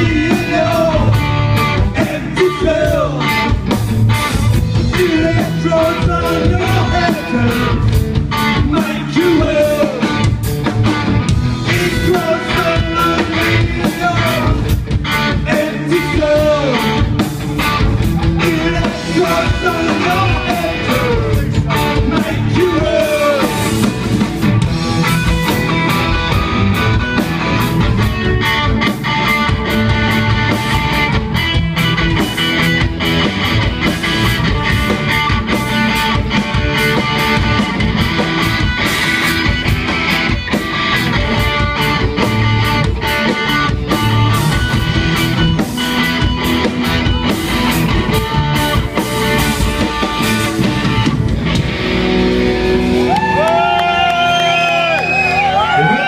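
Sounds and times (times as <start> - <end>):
man singing: 0.0 - 3.5, 4.8 - 10.3, 11.6 - 17.2, 18.1 - 23.9
bass: 0.0 - 56.0
distorted electric guitars: 0.0 - 56.0
drums: 0.0 - 56.0.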